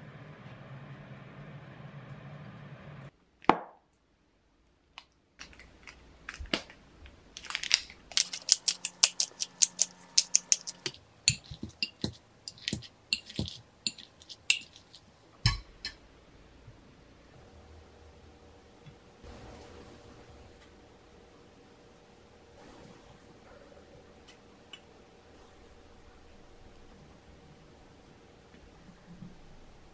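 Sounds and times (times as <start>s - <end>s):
pepper grinder clicking: 7.4s - 15.0s.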